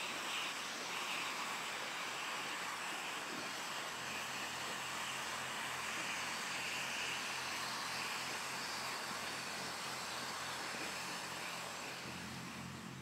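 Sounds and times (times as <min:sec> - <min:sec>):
steady hiss: 0:00.0 - 0:13.0
low engine hum: 0:00.4 - 0:13.0.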